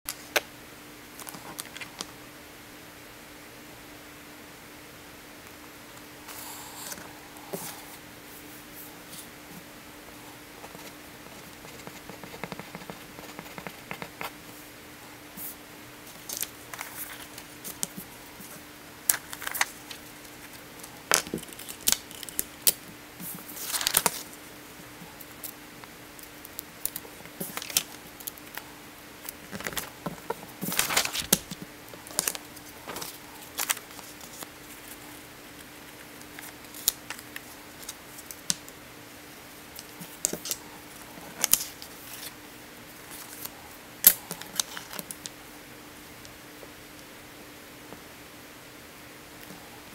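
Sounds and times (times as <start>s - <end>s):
faint steady hum: 0.1s - 49.9s
paper rustling and crinkling: 15.4s - 24.4s, 26.8s - 28.6s, 29.2s - 38.5s, 39.8s - 42.4s, 43.0s - 45.3s.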